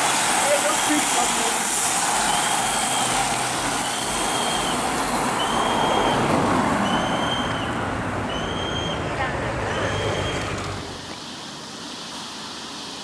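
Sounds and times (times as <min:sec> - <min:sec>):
bicycles and vehicles rushing past: 0:01.6 - 0:11.2.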